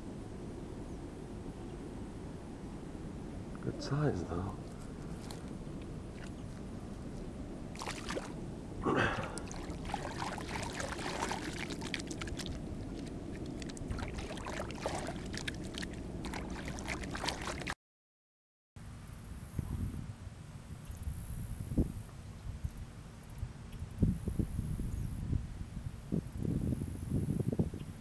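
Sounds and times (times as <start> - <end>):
hands splashing in water: 7.7 - 8.4, 9.0 - 17.8.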